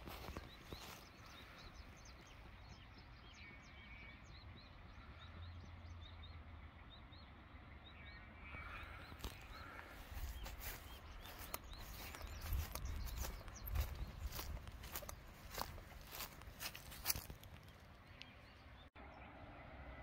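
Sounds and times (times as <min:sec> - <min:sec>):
high chirping calls: 0:08.5 - 0:18.8.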